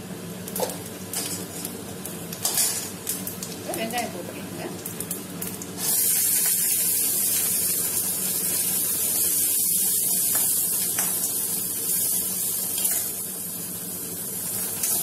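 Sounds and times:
onions sizzling in hot oil: 0.0 - 15.0.

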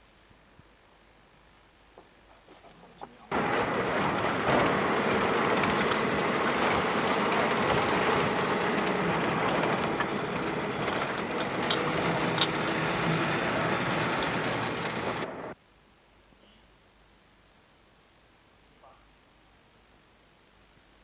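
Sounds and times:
dense rattle: 3.3 - 15.6
van engine and road noise: 3.3 - 15.6.

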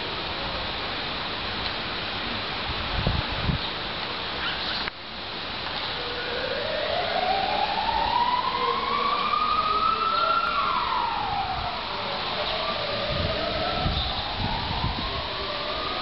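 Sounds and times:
steady background noise: 0.0 - 16.0
siren wailing: 5.9 - 16.0.

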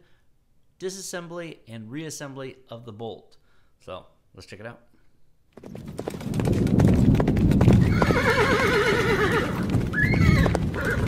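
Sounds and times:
horse hoofbeats galloping: 5.6 - 11.0
horse whinnying: 7.8 - 11.0.

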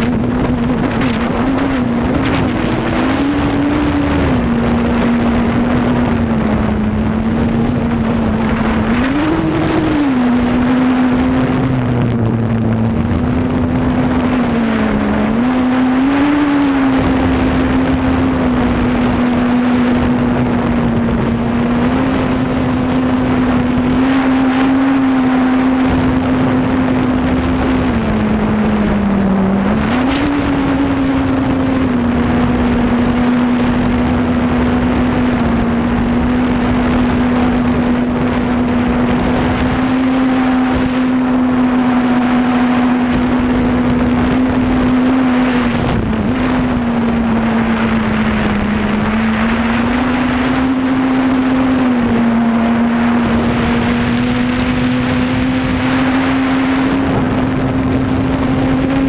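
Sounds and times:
drone propellers buzzing: 0.0 - 59.0
rushing noise: 0.0 - 59.0.

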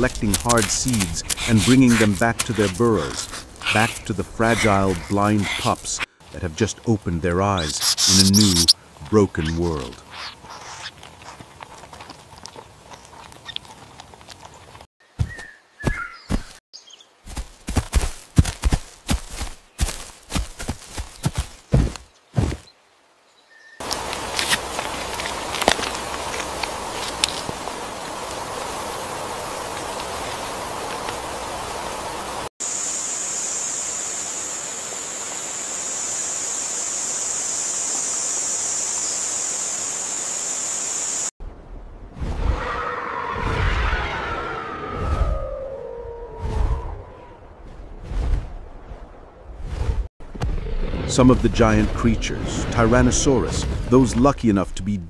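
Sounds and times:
steady rushing hiss: 0.0 - 10.9, 23.8 - 41.3
rustling hiss with scratchy clicks: 23.8 - 32.5.

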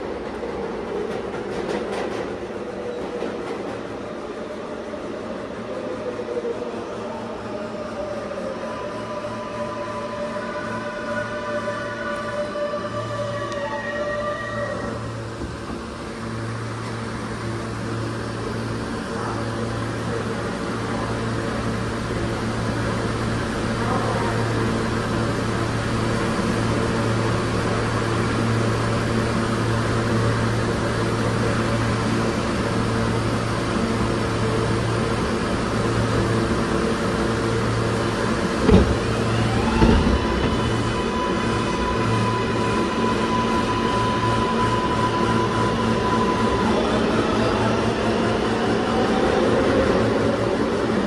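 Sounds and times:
subway wheels rumbling on rails: 0.0 - 51.0.

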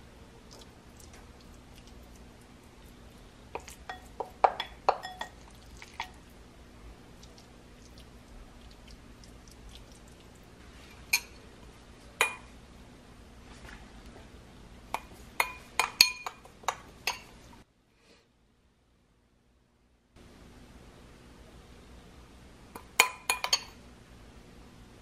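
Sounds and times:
metal spoon clinking against glass bowl: 3.6 - 5.4, 15.4 - 17.3, 22.8 - 23.8.

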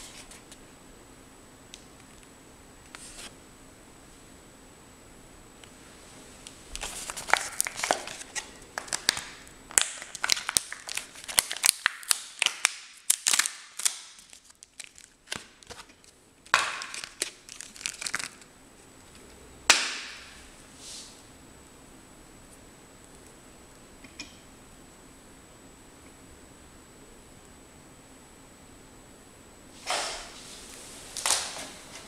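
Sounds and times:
packaging crinkling: 6.7 - 19.2.

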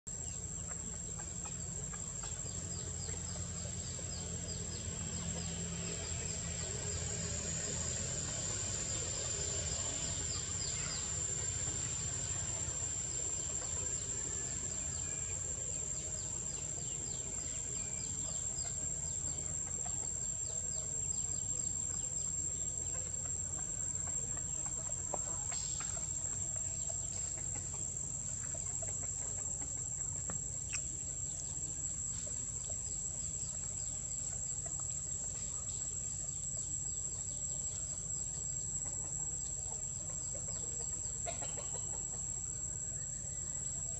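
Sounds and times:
high-pitched insect drone: 0.1 - 43.9
low outdoor rumble: 0.1 - 43.9.

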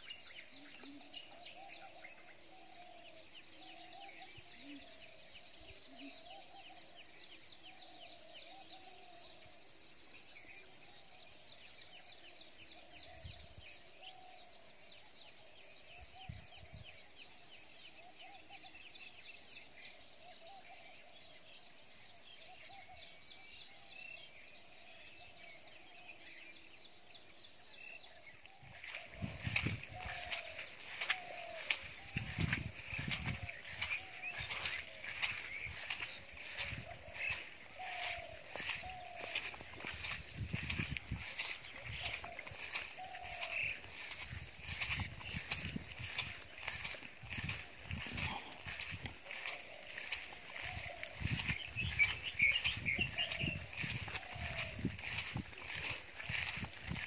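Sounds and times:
chirping and warbling calls: 28.6 - 57.0.

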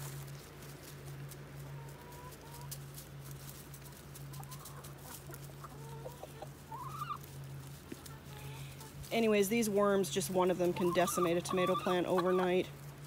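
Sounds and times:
steady low hum: 0.0 - 13.0
hens clucking: 0.6 - 12.9.

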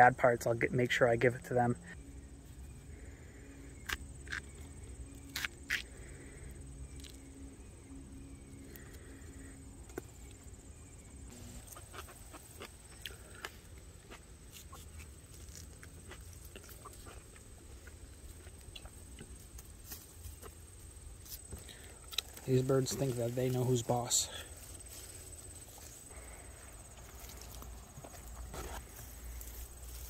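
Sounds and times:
chickens: 11.0 - 13.4.

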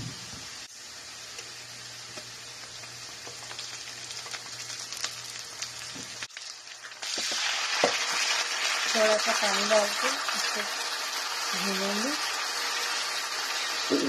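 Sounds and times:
onions sizzling in oil: 0.0 - 14.0
oil popping and crackling: 2.1 - 14.0.

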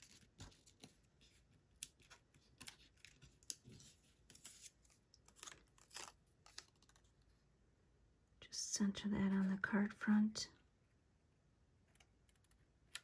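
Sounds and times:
cardstock strip clicks and rustles: 1.7 - 7.1, 12.0 - 13.0.

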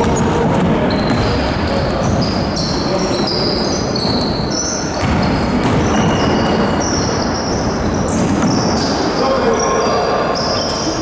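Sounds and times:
basketball bouncing: 0.0 - 3.0, 4.0 - 8.9
sneakers squeaking on floor: 0.0 - 11.0.

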